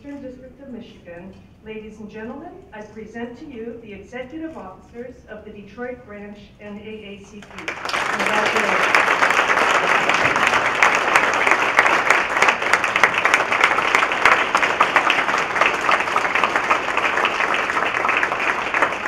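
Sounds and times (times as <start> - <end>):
crowd applauding: 7.4 - 19.0.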